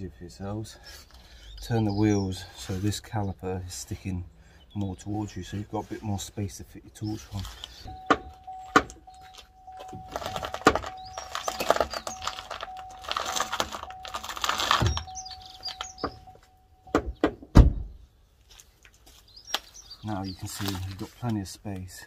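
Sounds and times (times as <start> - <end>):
steering scraping and creaking: 4.9 - 16.6
heavy thunk: 17.0 - 17.9.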